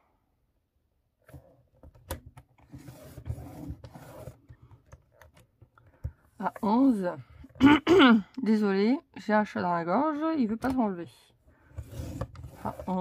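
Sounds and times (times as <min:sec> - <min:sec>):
scoring tool scratching paper: 0:11.8 - 0:13.0.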